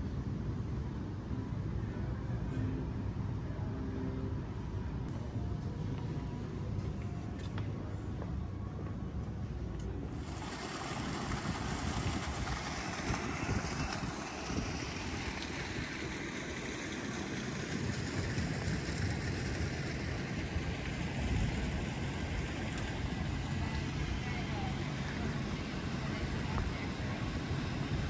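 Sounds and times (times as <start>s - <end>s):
wind buffeting microphone: 10.1s - 28.0s.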